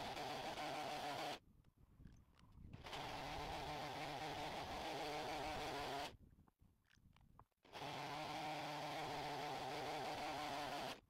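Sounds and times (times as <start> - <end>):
chainsaw cutting log: 0.0 - 1.4, 2.8 - 6.2, 7.6 - 11.0.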